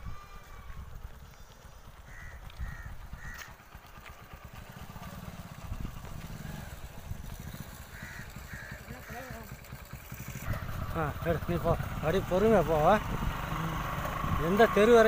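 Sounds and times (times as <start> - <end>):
crow cawing: 2.1 - 3.7, 7.5 - 9.6.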